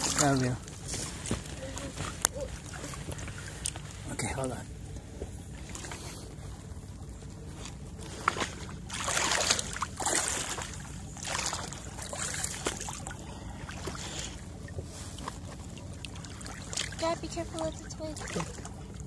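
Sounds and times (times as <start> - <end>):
steady low rumble: 0.0 - 19.0
paddle strokes splashing in water: 8.0 - 18.9.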